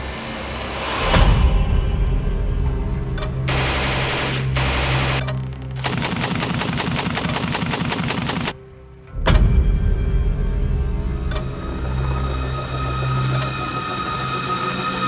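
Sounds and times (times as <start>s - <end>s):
background music with steady bass: 0.0s - 15.0s
machine gun automatic fire: 3.5s - 8.6s.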